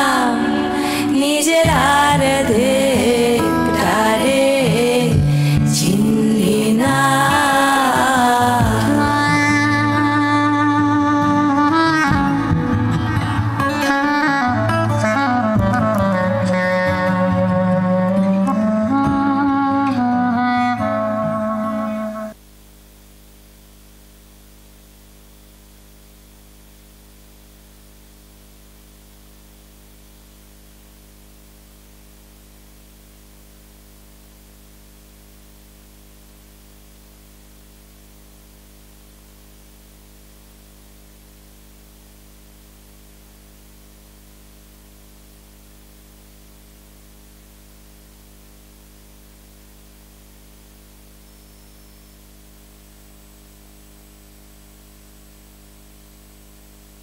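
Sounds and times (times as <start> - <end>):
steady hiss: 0.0 - 15.2, 21.4 - 57.0
low electrical hum: 20.8 - 57.0.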